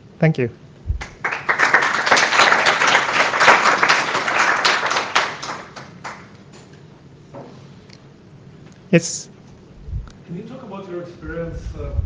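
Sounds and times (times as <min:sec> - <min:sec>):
audience applauding: 0:01.0 - 0:06.4.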